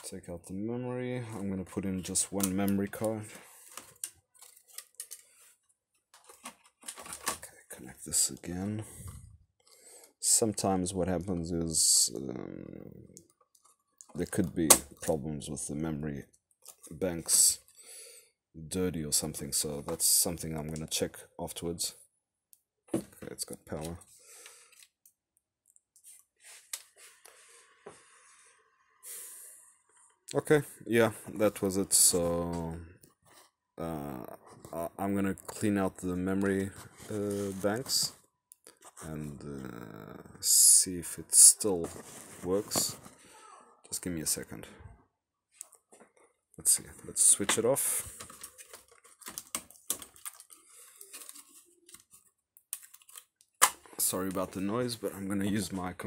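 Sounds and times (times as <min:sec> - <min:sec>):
soft breathing: 0:26.4 - 0:29.9.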